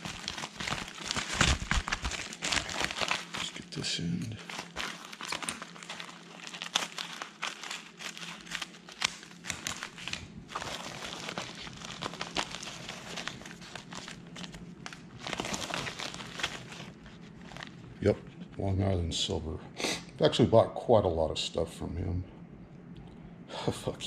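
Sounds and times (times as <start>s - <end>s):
packaging crinkling and rustling: 0.0s - 18.2s.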